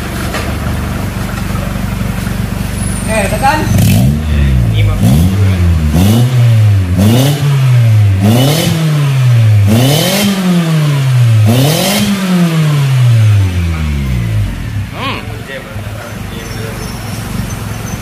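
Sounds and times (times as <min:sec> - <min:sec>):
car engine revving: 0:00.0 - 0:18.0.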